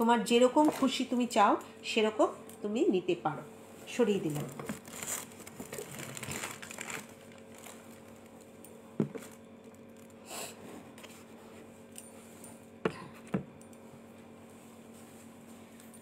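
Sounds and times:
plastic containers rustling: 0:04.3 - 0:08.4, 0:09.0 - 0:09.4.

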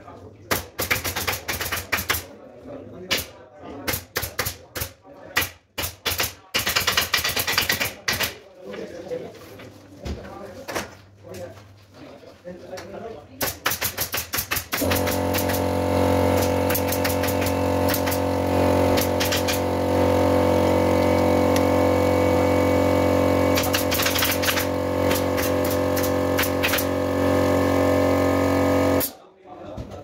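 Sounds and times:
air compressor motor humming: 0:14.7 - 0:29.2.

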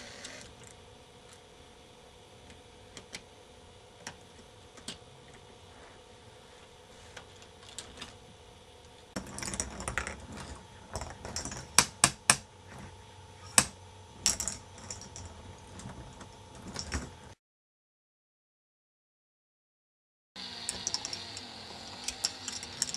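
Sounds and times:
plastic balls clicking and clattering: 0:20.7 - 0:22.9.

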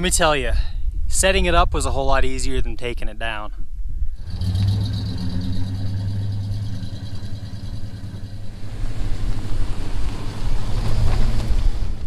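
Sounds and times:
truck engine running: 0:04.1 - 0:12.0.

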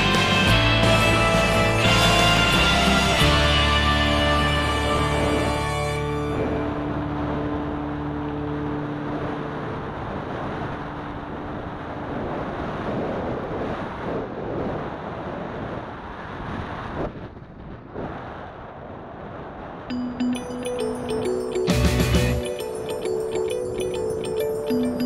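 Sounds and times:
background music: 0:00.0 - 0:10.1, 0:19.9 - 0:25.0
wind rushing over microphone: 0:01.1 - 0:21.0.

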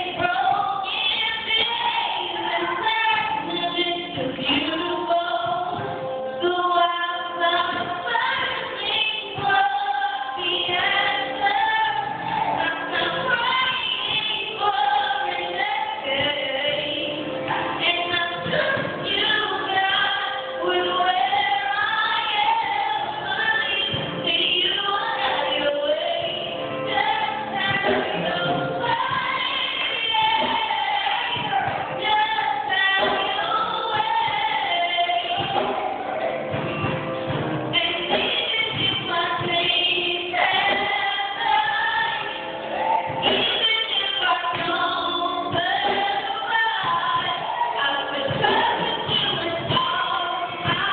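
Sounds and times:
woman singing through loudspeaker: 0:00.0 - 0:36.6, 0:37.3 - 0:50.9.

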